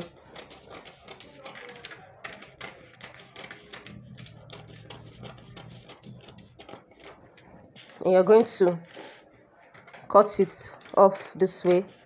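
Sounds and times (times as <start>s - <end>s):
scissors snipping paper: 0.0s - 7.2s
paper crackle: 0.0s - 9.2s.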